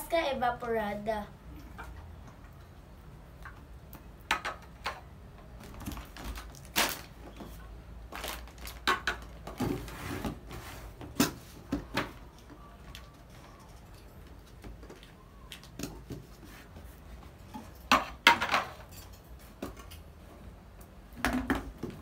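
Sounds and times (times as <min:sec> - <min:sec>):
packaging rustling: 0:05.6 - 0:07.5, 0:08.1 - 0:10.5.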